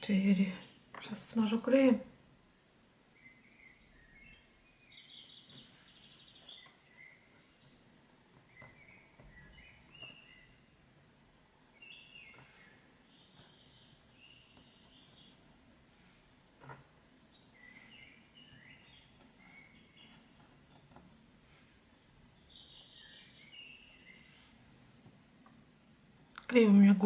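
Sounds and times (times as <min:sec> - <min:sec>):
faint bird chirps: 0:01.4 - 0:10.8, 0:11.7 - 0:15.5, 0:17.3 - 0:20.9, 0:21.5 - 0:24.8.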